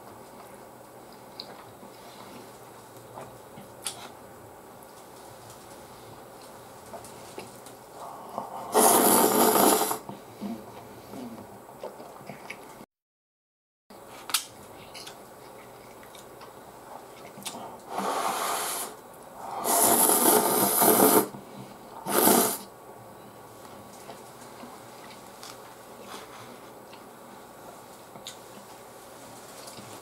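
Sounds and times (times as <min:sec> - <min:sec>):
quiet chewing: 0:00.0 - 0:04.2, 0:04.8 - 0:08.6, 0:10.1 - 0:12.8, 0:14.7 - 0:17.9, 0:23.6 - 0:30.0
noodles slurped noisily: 0:08.7 - 0:10.0, 0:19.6 - 0:21.3, 0:22.0 - 0:22.7.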